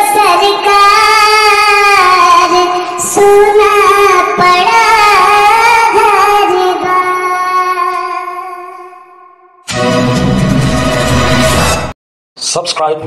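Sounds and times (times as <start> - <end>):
high-pitched voice singing: 0.0 - 9.1
musical backing: 9.7 - 11.9.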